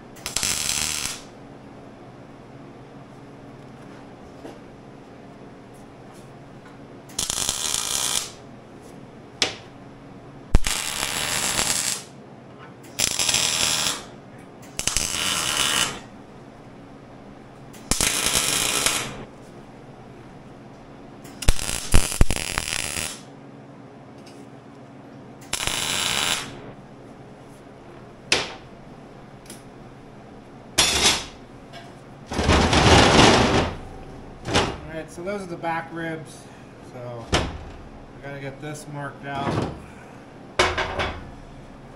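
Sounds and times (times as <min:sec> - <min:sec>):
arc welder buzzing: 0:00.0 - 0:02.0, 0:06.6 - 0:12.2, 0:12.8 - 0:23.3, 0:25.4 - 0:36.0.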